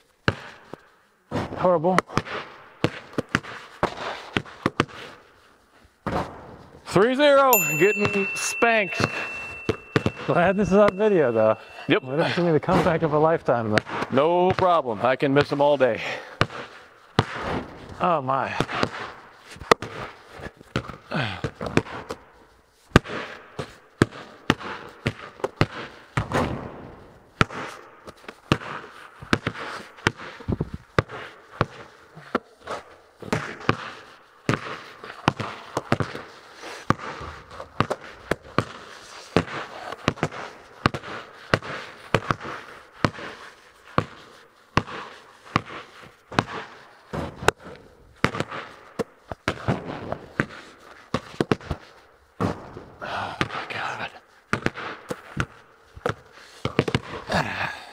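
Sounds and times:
basketballs bouncing on concrete: 0.2 - 0.8, 2.0 - 5.1, 13.6 - 14.8, 15.4 - 19.1, 19.7 - 22.1, 24.0 - 26.7, 28.5 - 30.3, 31.0 - 31.9, 33.2 - 43.4, 44.0 - 47.6, 48.2 - 51.8, 52.4 - 53.6, 54.5 - 57.6.

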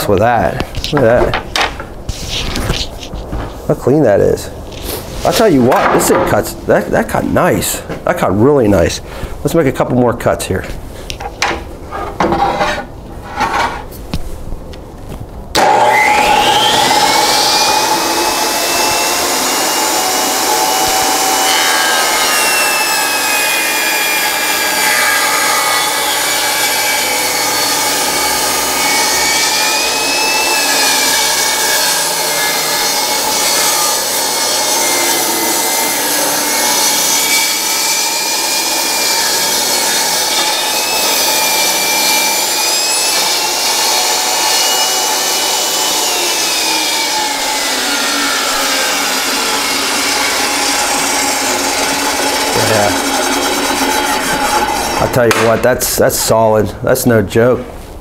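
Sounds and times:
table saw ripping wood: 15.6 - 55.7.

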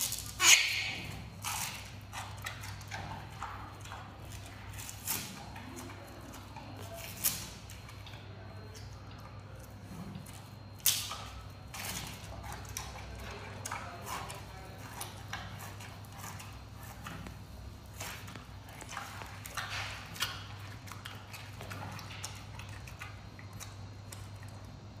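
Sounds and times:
panda chewing bamboo: 9.6 - 24.6.

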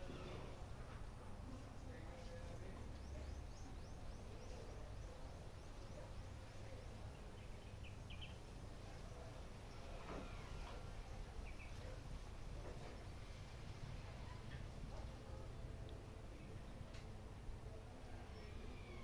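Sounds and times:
faint bird chirps: 18.1 - 19.0.

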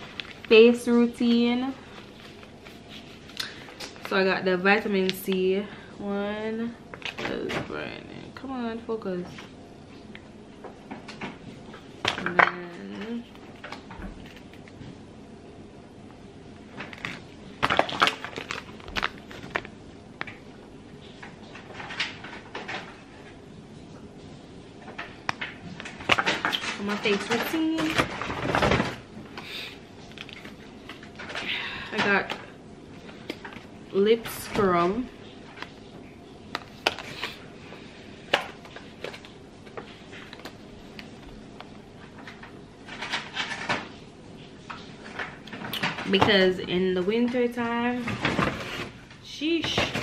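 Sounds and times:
paper bag crackling: 16.7 - 19.8
foil sachets crinkling: 16.7 - 20.4.

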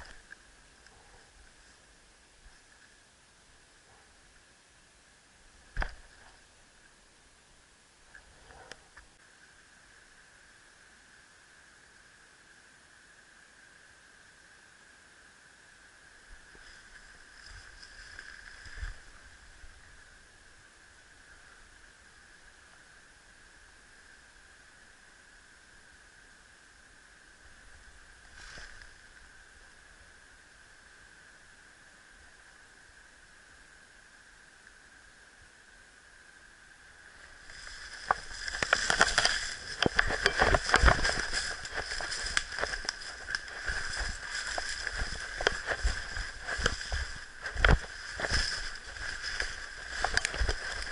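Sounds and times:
faint hiss: 0.0 - 50.9
footsteps through dry leaves: 16.6 - 19.1, 37.4 - 50.9
camera hiss: 37.2 - 50.9
clothing rustling: 37.5 - 50.9.

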